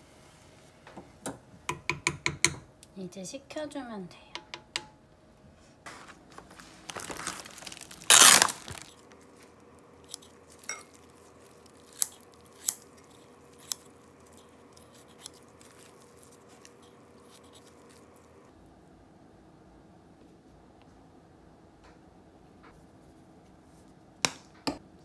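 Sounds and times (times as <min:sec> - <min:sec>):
plastic packaging crinkling: 0:05.9 - 0:18.4
scissors snipping: 0:10.0 - 0:10.4, 0:11.8 - 0:17.8.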